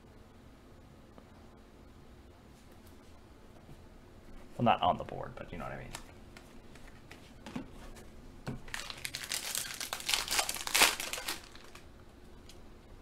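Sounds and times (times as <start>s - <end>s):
foil wrapper crinkling and tearing: 8.6s - 11.9s.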